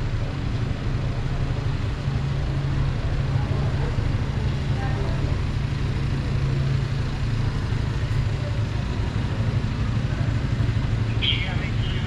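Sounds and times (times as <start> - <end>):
street traffic: 0.0 - 12.0
vehicle engine idling: 0.0 - 12.0.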